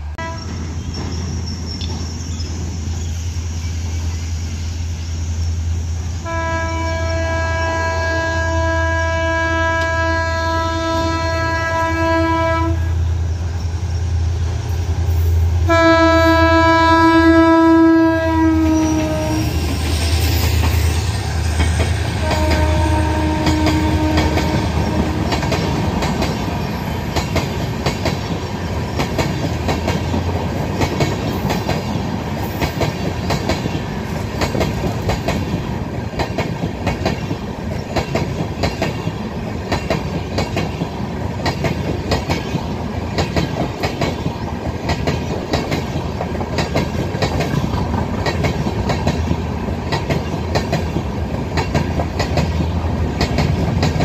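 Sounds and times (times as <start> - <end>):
train wheels clicking on rails: 0.0 - 7.6, 17.5 - 54.0
locomotive passing: 0.0 - 54.0
train horn blasts: 0.1 - 0.6, 6.2 - 13.2, 15.6 - 19.8, 22.1 - 26.0.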